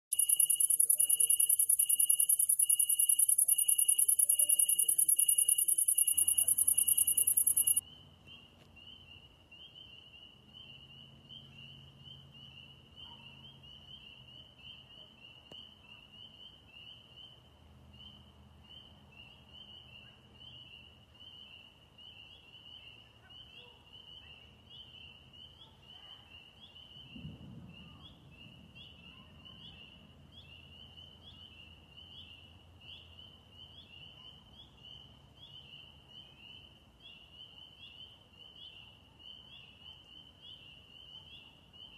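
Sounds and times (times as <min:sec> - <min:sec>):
cricket chirping: 0:00.1 - 0:07.8
high-pitched insect trill: 0:00.1 - 0:07.8.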